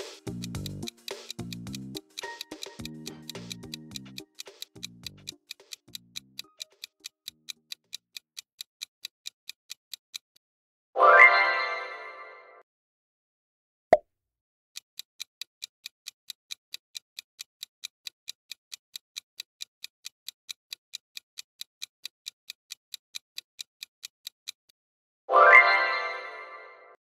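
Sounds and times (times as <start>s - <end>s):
sharp click: 0.0s - 7.8s
clock ticking: 0.0s - 10.4s, 14.8s - 24.7s.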